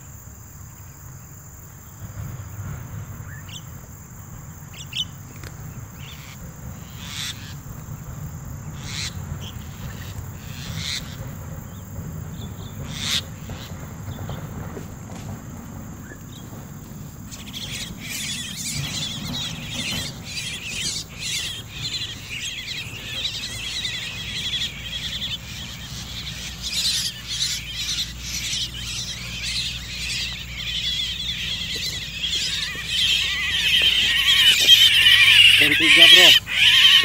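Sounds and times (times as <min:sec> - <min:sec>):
birds squawking and screeching: 0:06.0 - 0:07.7, 0:08.7 - 0:14.6, 0:16.1 - 0:37.0.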